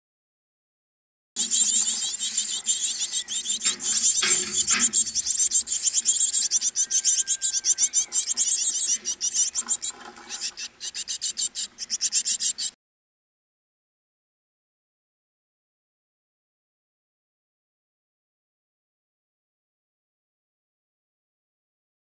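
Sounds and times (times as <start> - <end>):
nestlings begging chirps: 1.4 - 12.8.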